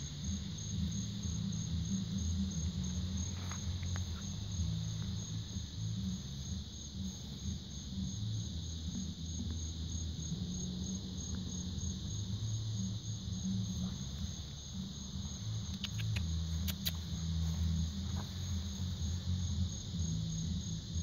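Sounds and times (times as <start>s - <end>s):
distant bass music: 0.0s - 21.0s
insects trilling: 0.0s - 21.0s.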